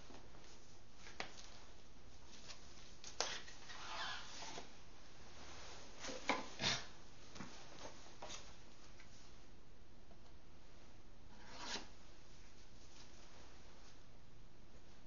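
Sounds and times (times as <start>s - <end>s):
soft rustle: 0.0s - 6.6s, 11.7s - 14.1s.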